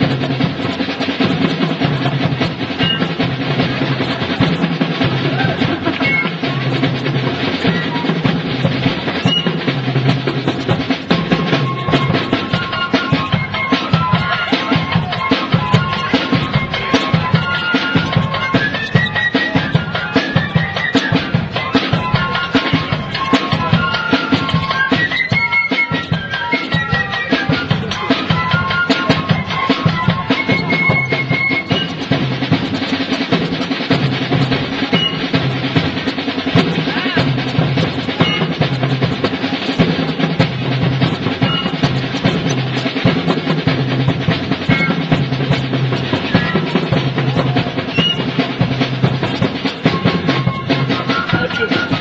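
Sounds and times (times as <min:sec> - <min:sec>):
band drumming: 0:00.0 - 0:52.0.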